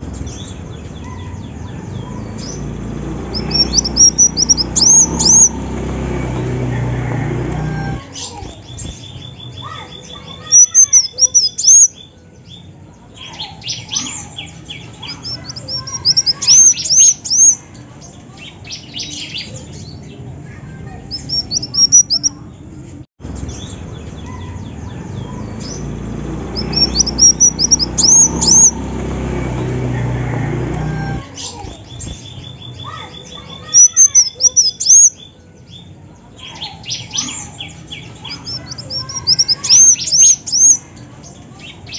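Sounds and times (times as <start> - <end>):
bird chirping high: 0.0 - 20.2, 21.0 - 22.5, 23.4 - 41.9
fast ticking trill: 3.2 - 5.7, 26.3 - 29.1.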